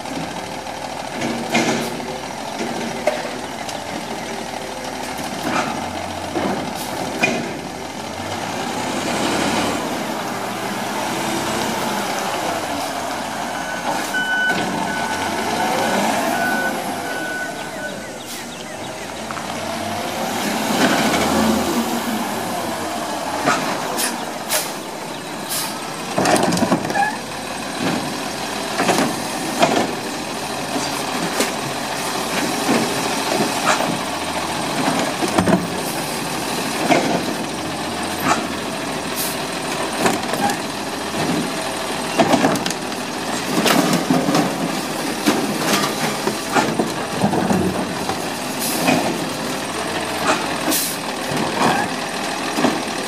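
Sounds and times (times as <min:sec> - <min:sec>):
garbage truck engine running: 0:00.0 - 0:53.0
trash carts knocking and clanking: 0:00.0 - 0:53.0.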